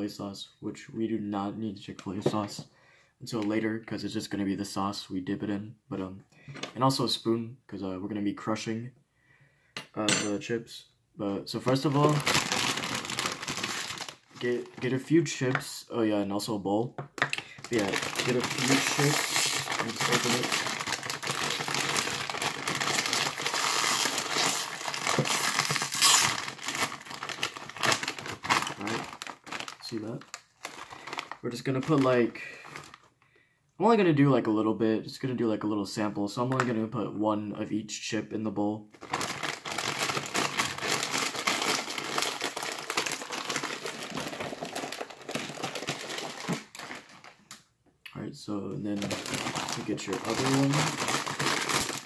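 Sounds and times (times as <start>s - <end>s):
chip bag crinkling: 11.6s - 15.0s, 17.3s - 33.0s, 39.0s - 47.6s, 48.9s - 52.0s.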